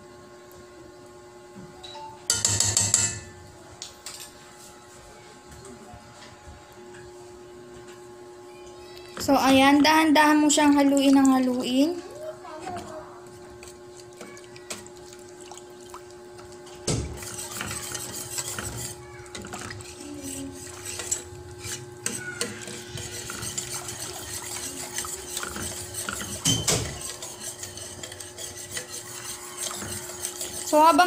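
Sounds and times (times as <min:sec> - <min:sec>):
whisk scraping metal pot: 0:16.6 - 0:31.0.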